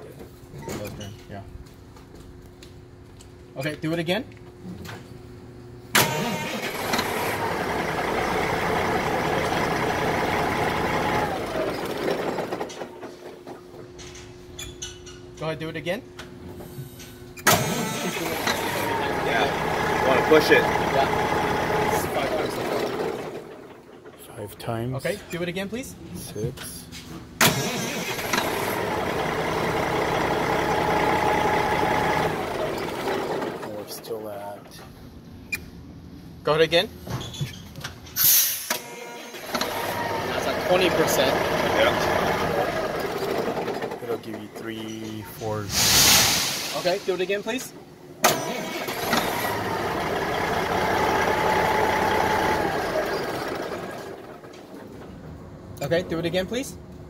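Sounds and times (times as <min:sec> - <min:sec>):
diesel engine cranking and running: 0:05.9 - 0:14.2, 0:17.4 - 0:24.5, 0:27.4 - 0:34.2, 0:38.6 - 0:55.7.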